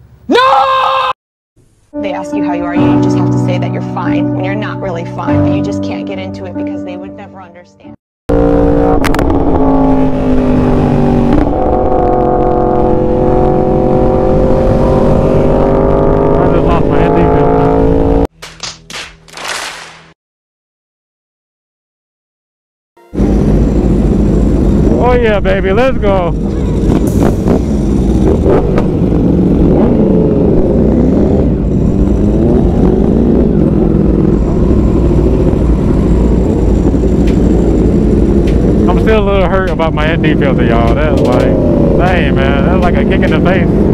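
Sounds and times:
wind and road noise: 8.3 - 18.3, 23.1 - 43.9
motorcycle engine running: 23.1 - 43.9
constant low rumble: 23.2 - 30.8, 31.4 - 43.9.

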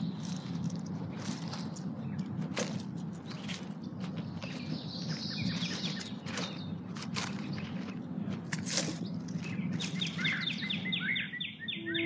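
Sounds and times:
dry leaves crackling and rustling: 0.0 - 10.9
small birds chirping: 0.0 - 12.0.

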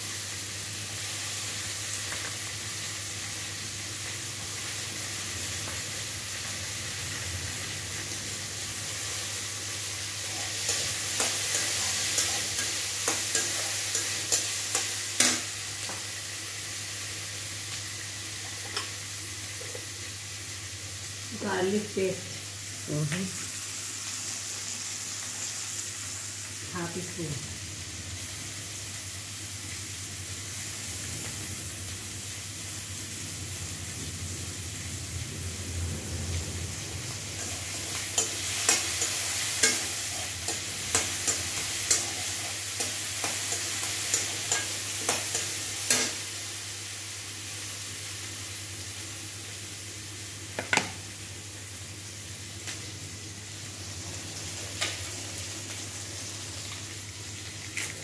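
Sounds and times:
vegetables sizzling in oil: 0.0 - 58.0
metal spatula clacking on pan: 42.8 - 46.2.

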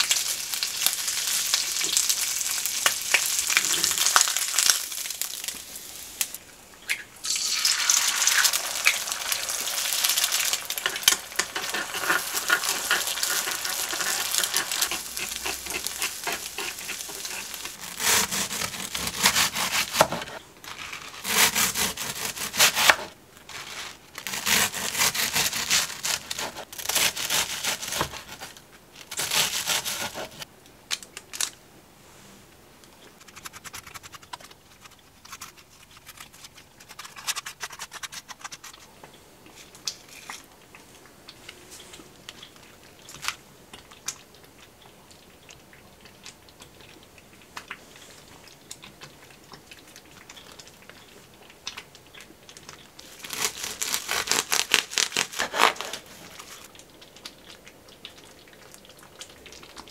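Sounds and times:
plastic wrap crinkling: 0.0 - 6.4, 7.3 - 31.6, 33.0 - 38.9, 50.0 - 59.9
bread knife sawing: 11.4 - 20.4, 21.2 - 23.1, 24.2 - 28.5, 29.1 - 30.4, 53.2 - 56.0.

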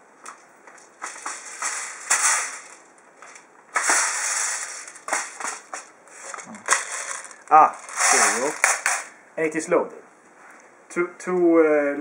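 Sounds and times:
scraping rattle: 1.0 - 9.1.

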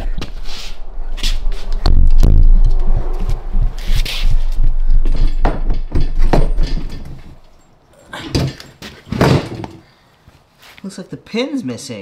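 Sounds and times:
low hum: 0.0 - 8.0
cart wheel and metal frame clunking: 4.8 - 9.9.

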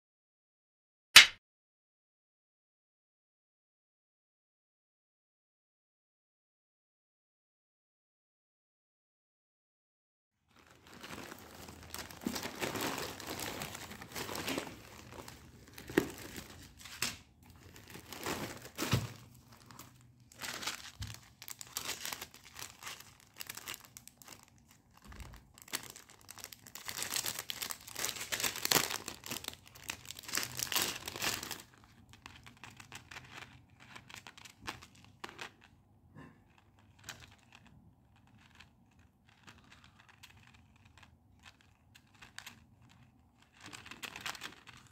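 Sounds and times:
packaging crinkling and tearing: 10.5 - 35.7, 36.5 - 44.9
scattered clicks and rustles: 36.6 - 44.9.

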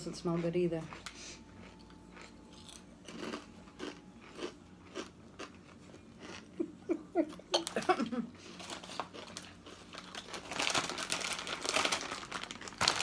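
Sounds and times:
person chewing crunchy chips: 0.3 - 13.0.

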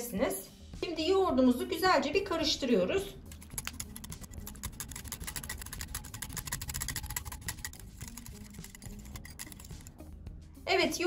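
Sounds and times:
whisk clicking against glass bowl: 3.4 - 10.0.

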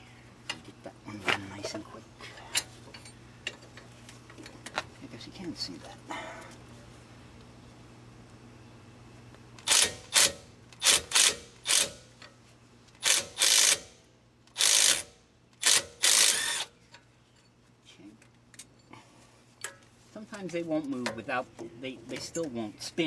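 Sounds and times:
impact driver bursts: 9.6 - 12.1, 13.0 - 13.9, 14.6 - 16.7.

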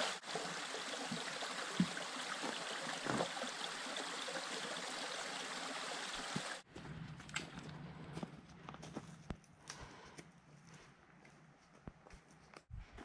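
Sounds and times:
stream water flowing: 0.0 - 6.6.

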